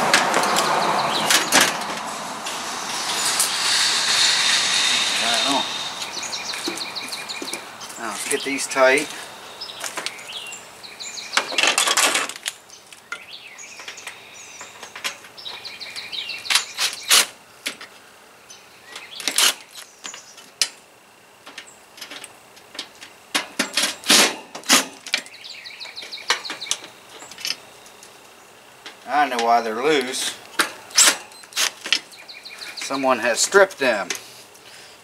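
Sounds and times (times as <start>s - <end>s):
birds chirping: 0.0s - 11.9s, 12.6s - 17.2s, 18.4s - 20.5s, 25.2s - 34.0s.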